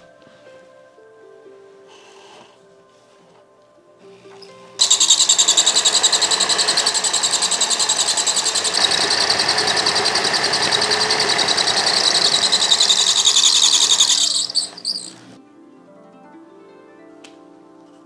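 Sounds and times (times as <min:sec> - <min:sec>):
electric motor whirring: 0:04.8 - 0:15.4.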